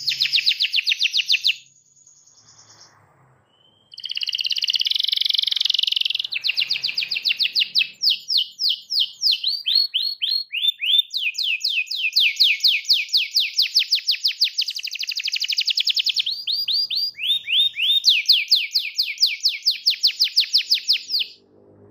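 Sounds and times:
canary singing: 0.0s - 21.4s.

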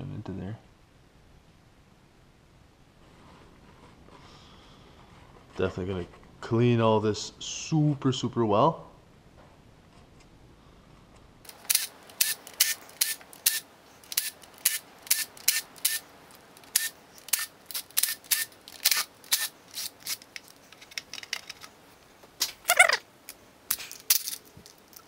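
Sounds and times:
cordless drill-driver clicking: 11.7s - 16.0s, 16.6s - 20.3s.

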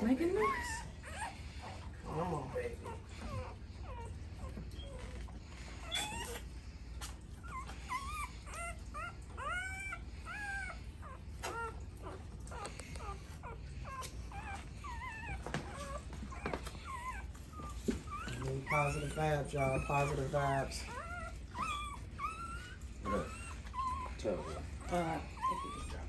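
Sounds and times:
dog whimpering: 0.0s - 26.0s.

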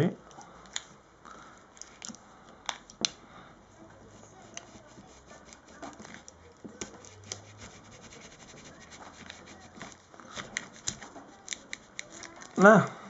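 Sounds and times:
card scraping under battery: 4.5s - 12.6s.

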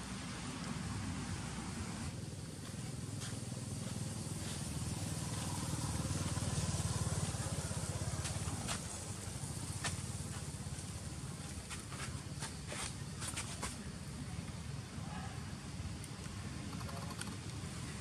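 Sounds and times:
vehicle engine passing: 3.6s - 11.0s.

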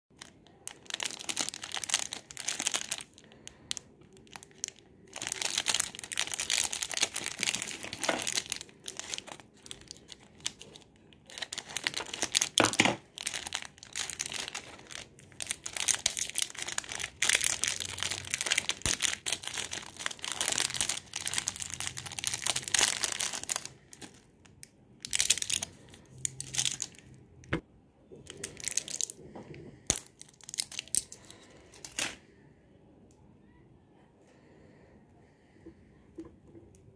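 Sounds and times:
foil wrapper crinkling and tearing: 0.2s - 24.3s, 25.0s - 27.1s, 28.3s - 29.2s, 29.8s - 32.2s.

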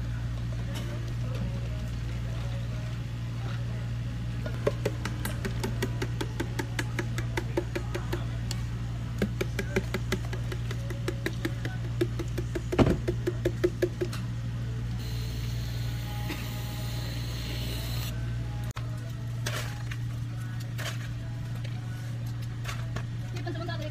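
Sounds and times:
low machine hum: 0.0s - 23.9s
cream dispenser hissing: 15.0s - 18.1s.

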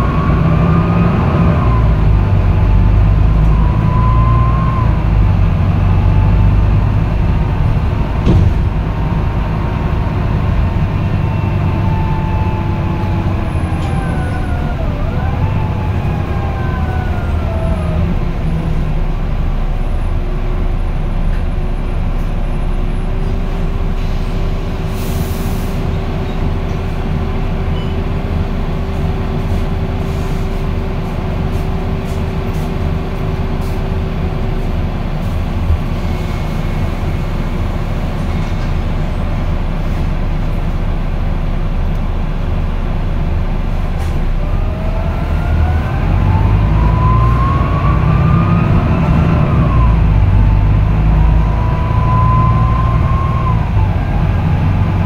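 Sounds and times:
bus diesel engine rumbling: 0.0s - 55.0s.

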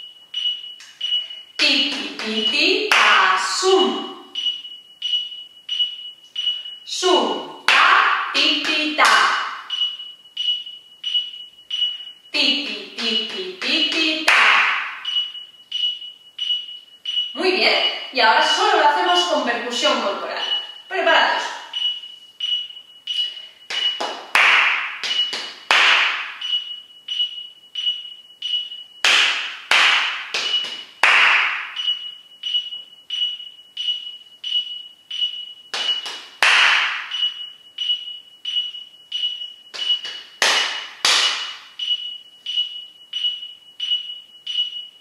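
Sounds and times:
electronic metronome beeps: 0.0s - 45.0s
hand claps and slaps: 1.9s - 2.3s, 2.9s - 3.2s, 13.0s - 15.1s, 23.7s - 26.5s, 29.0s - 32.0s, 35.7s - 37.4s, 39.7s - 41.7s.

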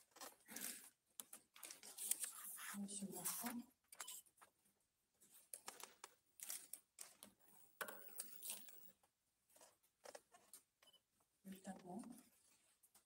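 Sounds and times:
paper rustling: 0.0s - 3.6s.

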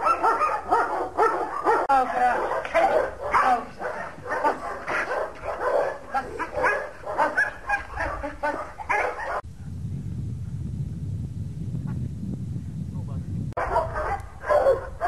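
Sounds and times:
dog barking rapidly: 0.0s - 9.4s, 13.6s - 15.0s
steady low rumble: 9.4s - 13.6s.

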